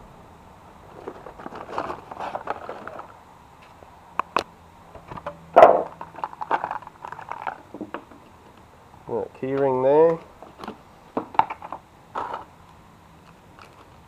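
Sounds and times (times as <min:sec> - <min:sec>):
cardboard and plastic rustling: 0:00.9 - 0:03.8, 0:05.0 - 0:08.2, 0:10.1 - 0:12.5, 0:13.2 - 0:14.0.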